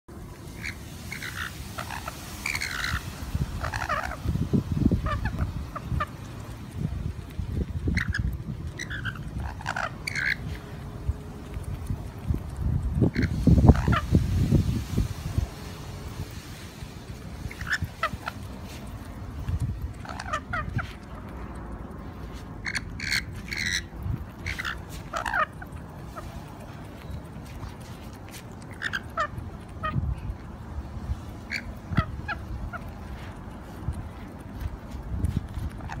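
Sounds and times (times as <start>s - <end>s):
steady low rumble: 0.1s - 36.0s
lorikeets chattering: 0.6s - 3.0s, 3.6s - 4.3s, 7.9s - 10.5s, 20.0s - 20.9s, 22.6s - 25.6s, 31.4s - 32.9s.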